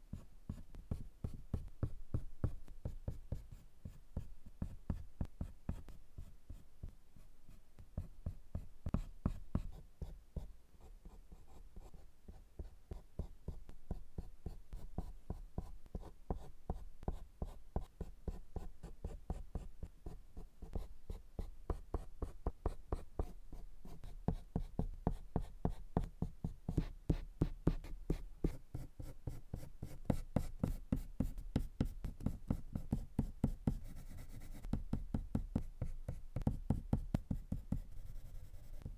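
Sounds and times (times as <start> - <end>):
colored pencil scratching on paper: 14.2 - 38.9.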